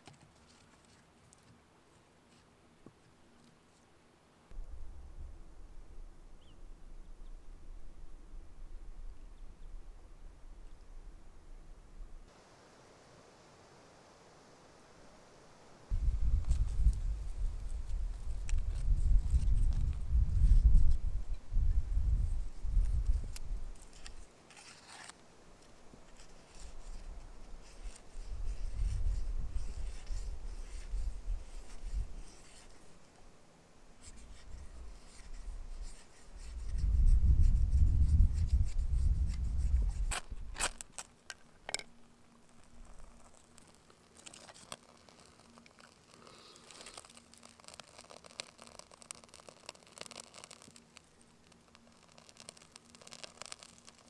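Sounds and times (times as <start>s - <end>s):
knife scraping dry wood: 23.9s - 25.2s.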